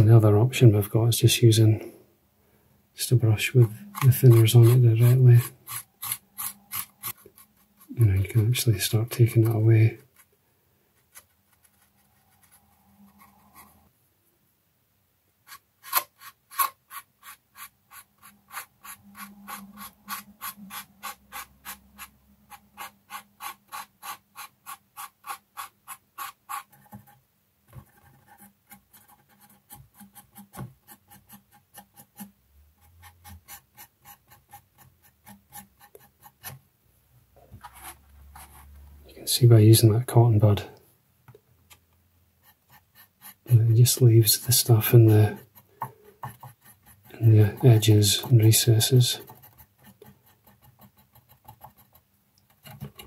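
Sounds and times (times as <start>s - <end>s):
cotton bud scrubbing plastic: 3.2s - 10.3s, 15.4s - 27.1s, 42.4s - 51.9s.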